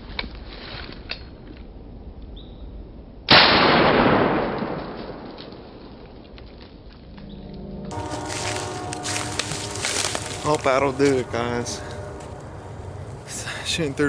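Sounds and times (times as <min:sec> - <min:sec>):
shotgun shot with echo: 0:03.3 - 0:05.4.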